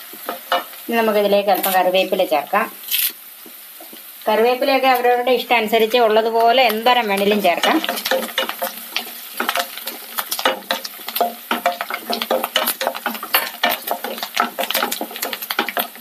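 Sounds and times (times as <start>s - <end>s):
light sizzle of frying: 0.0s - 16.0s
spatula scraping a wok: 7.4s - 16.0s.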